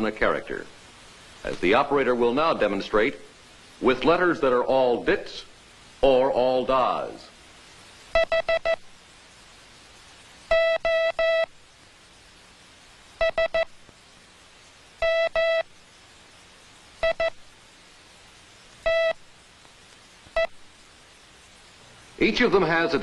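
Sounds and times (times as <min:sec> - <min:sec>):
morse code beeps: 0:08.2 - 0:08.8, 0:10.5 - 0:11.5, 0:13.2 - 0:13.7, 0:15.0 - 0:15.7, 0:17.0 - 0:17.4, 0:18.8 - 0:19.2.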